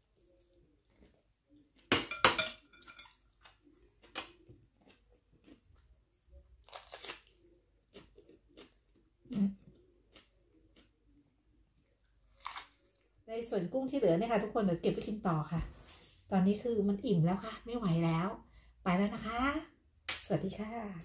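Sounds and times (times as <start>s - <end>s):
person chewing: 3.1s - 11.2s, 11.8s - 13.1s
crunching bites of raw vegetable: 6.6s - 8.7s, 12.3s - 12.9s.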